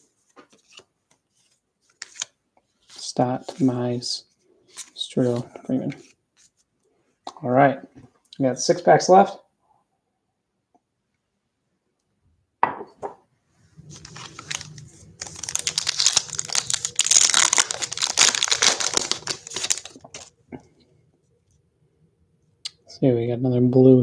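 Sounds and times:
foil wrapper tearing and crinkling: 0:13.9 - 0:20.3.

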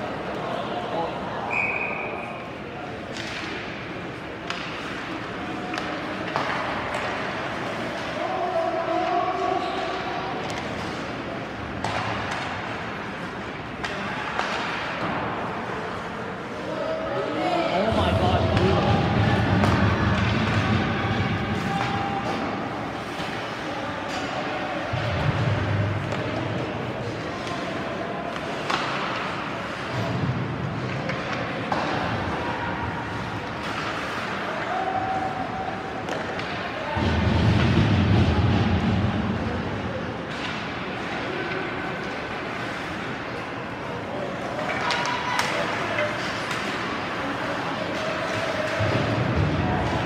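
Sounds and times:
arena crowd hum: 0:00.0 - 0:50.0
sharp knocks from hockey play: 0:11.6 - 0:12.8.

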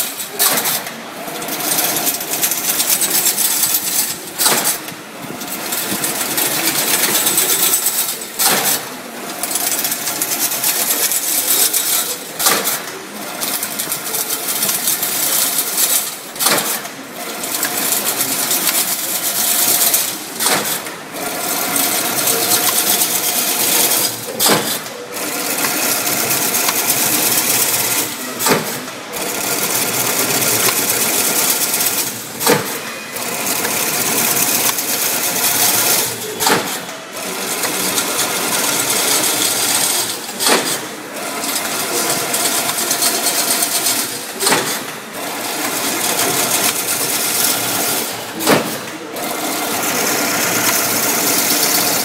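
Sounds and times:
fence machine metallic clatter: 0:00.0 - 0:52.0.

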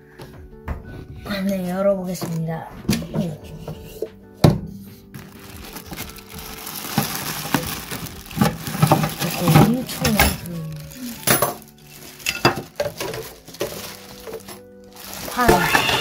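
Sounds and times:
plastic wrapping crinkling: 0:05.1 - 0:16.0
metal trays clinking: 0:07.0 - 0:16.0.

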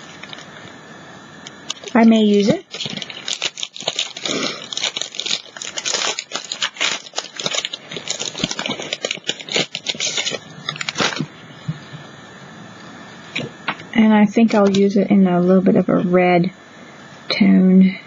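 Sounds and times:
plastic sheets crinkling: 0:00.0 - 0:00.6, 0:01.5 - 0:11.4, 0:14.5 - 0:14.8.

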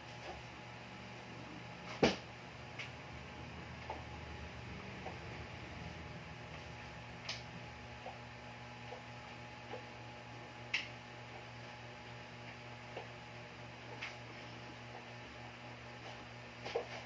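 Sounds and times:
low hum: 0:00.0 - 0:10.6.

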